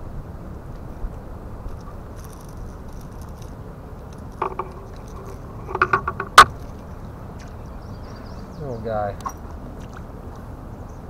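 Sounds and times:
small clicks and rattles: 1.6 - 7.5
metallic jangle: 1.8 - 6.5.

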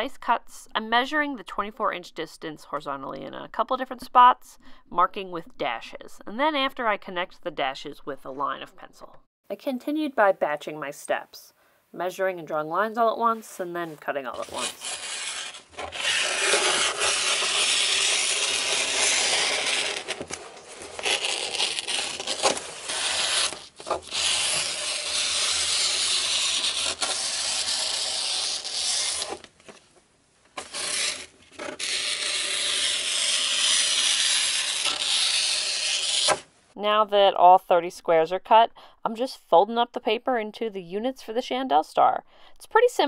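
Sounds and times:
scissors cutting paper: 14.4 - 29.5, 30.6 - 36.4.

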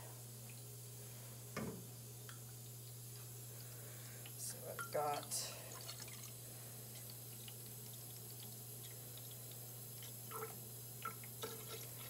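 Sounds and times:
trickle of liquid: 2.3 - 12.0.

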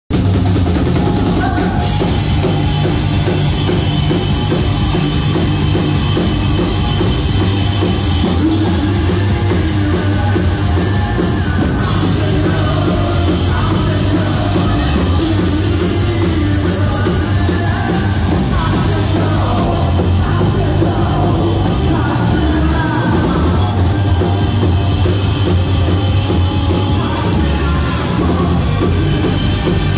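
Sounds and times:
live rock band playing: 0.1 - 29.9
person singing: 0.9 - 29.9.

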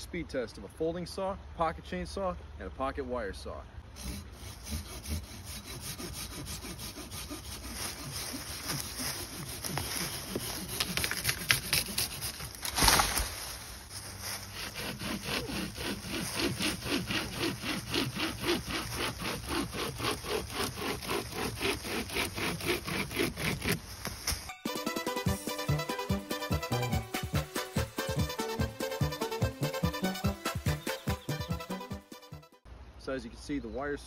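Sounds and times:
hand saw rasping through wood: 3.9 - 12.7, 14.2 - 23.8
pocket chainsaw cutting wood: 4.0 - 13.2, 14.3 - 24.2
sapling stem cracking: 9.8 - 13.4.

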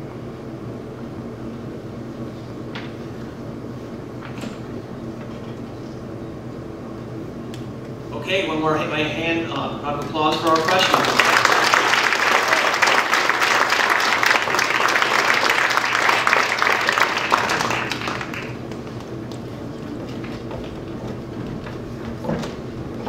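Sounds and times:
audience applauding: 10.0 - 19.0
footsteps and shuffling: 18.2 - 23.0.

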